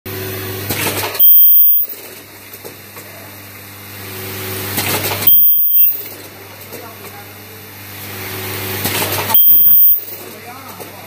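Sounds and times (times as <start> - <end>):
high-pitched welder squeal: 1.2 - 2.0, 5.3 - 6.1, 9.3 - 10.2.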